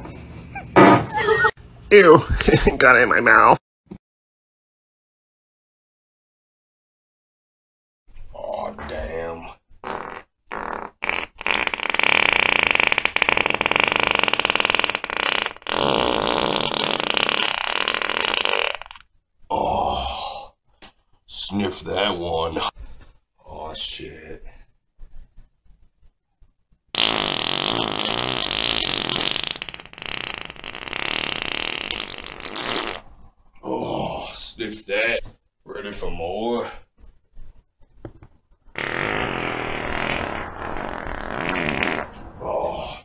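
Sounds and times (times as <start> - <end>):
person farting: 9.8 - 19.1, 26.9 - 33.1, 38.1 - 42.4.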